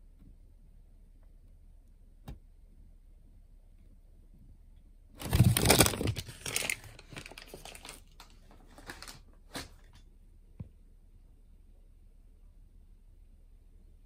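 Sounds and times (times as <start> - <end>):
paper bag rustling: 5.2 - 10.0.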